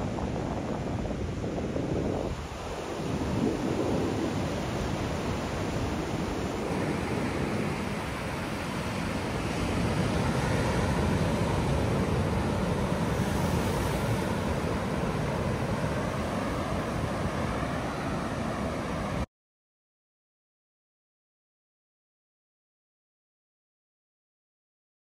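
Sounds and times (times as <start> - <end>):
wind on microphone: 0.0 - 19.2
ocean surf: 0.0 - 19.3.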